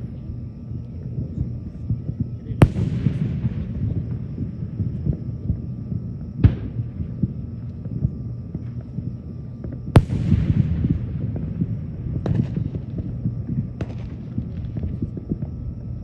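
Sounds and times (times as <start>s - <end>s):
low steady rumble: 0.0s - 16.0s
firework shells bursting: 9.6s - 15.5s.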